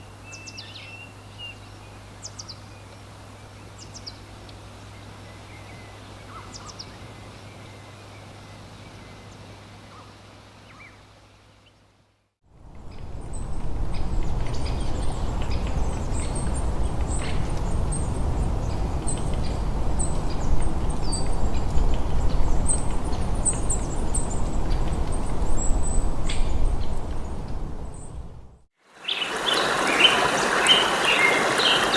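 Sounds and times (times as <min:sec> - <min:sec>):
songbirds chirping: 0:00.0 - 0:11.9, 0:12.6 - 0:31.9
rushing outdoor noise: 0:12.5 - 0:31.9.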